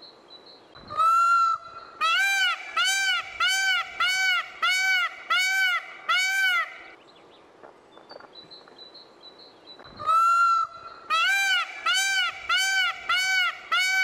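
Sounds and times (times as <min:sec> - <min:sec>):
peafowl honking calls: 0:00.9 - 0:07.0, 0:10.0 - 0:14.0.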